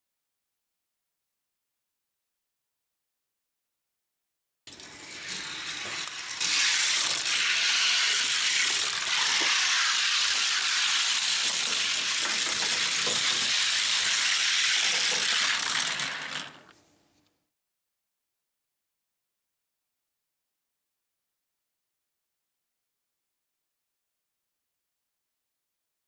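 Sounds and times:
toy cars rolling on plastic track: 4.7 - 16.8.

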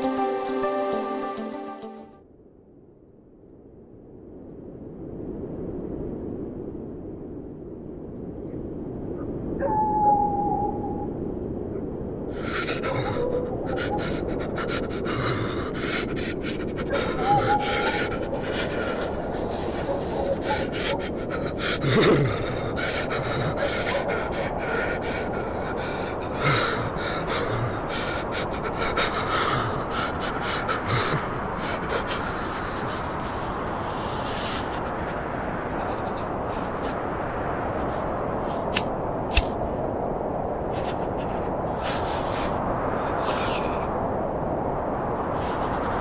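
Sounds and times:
wind: 2.2 - 46.0
man breathing shakily: 12.3 - 35.3
short clicks: 38.7 - 39.5.

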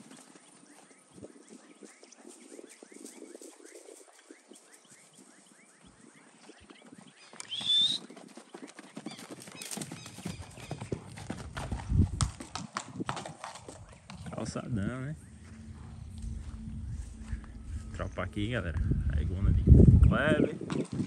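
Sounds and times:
horse hoofbeats on grass: 0.0 - 18.8
high rising whistle: 7.4 - 8.1, 14.7 - 19.7.

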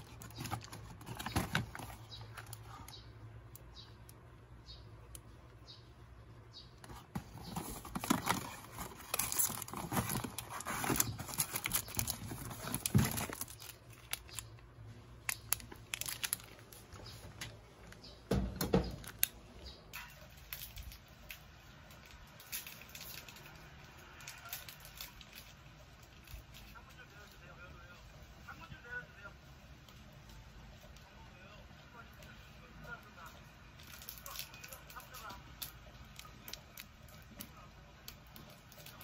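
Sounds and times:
snack packaging crinkling: 0.0 - 2.9, 6.9 - 14.6, 15.2 - 17.2, 33.8 - 37.5.

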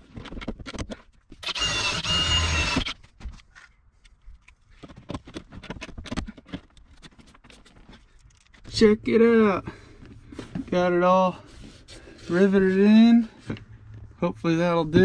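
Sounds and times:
power drill whine: 1.4 - 3.0.

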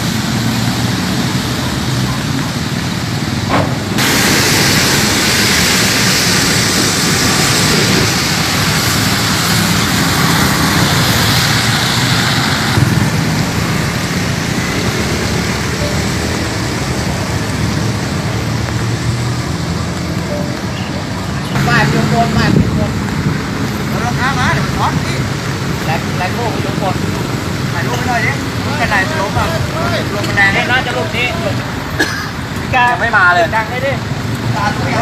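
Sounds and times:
rain falling: 0.0 - 35.0
low wind rumble: 3.0 - 30.9.

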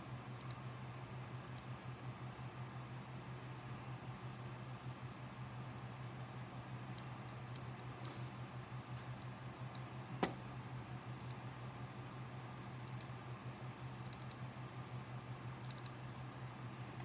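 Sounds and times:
steady low hum: 0.0 - 17.0
computer mouse clicks: 0.4 - 0.6, 7.0 - 8.2, 11.2 - 11.4, 12.8 - 13.1, 14.0 - 14.4, 15.6 - 16.0.

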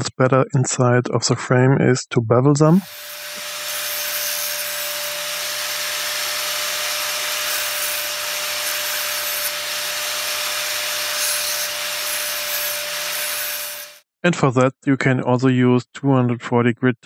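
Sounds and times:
angle grinder whining: 2.8 - 14.0
metal grinding hiss: 2.8 - 14.0.

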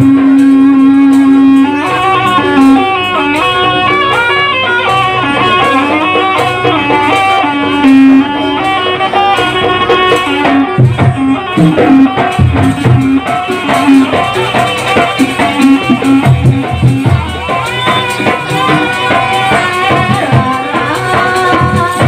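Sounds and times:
pitch-bending melody: 0.0 - 22.0
rattling percussion: 0.0 - 22.0.

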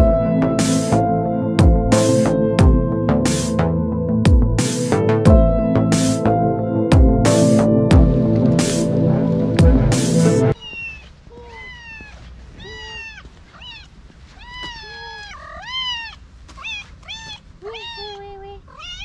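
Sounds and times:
cat meowing: 10.6 - 19.0.

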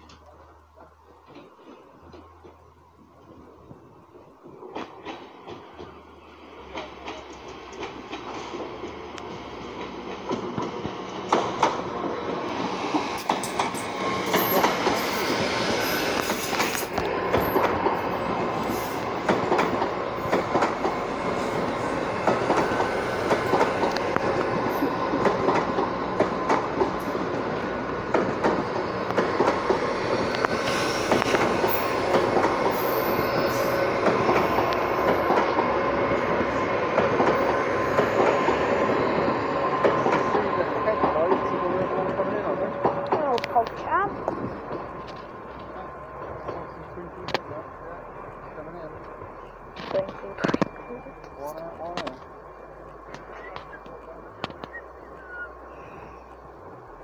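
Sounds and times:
train wheels clicking over track: 4.4 - 47.6
faint wheel squeal: 52.6 - 56.4.

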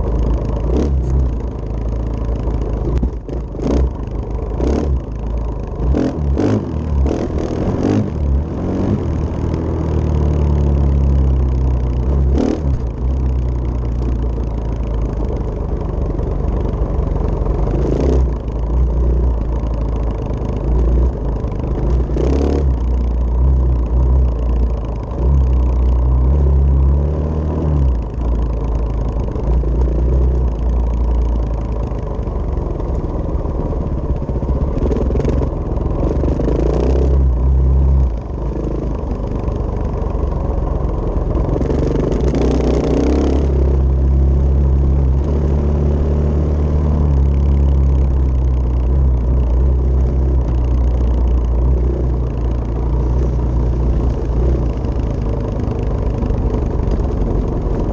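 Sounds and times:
dirt bike engine revving: 0.6 - 1.4, 3.3 - 5.0, 5.8 - 10.6, 12.0 - 12.9, 22.1 - 22.8, 41.5 - 43.8.

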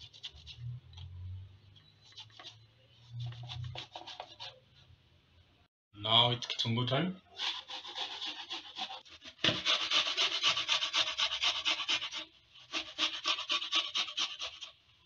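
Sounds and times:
onion rasping on grater: 7.4 - 14.7.

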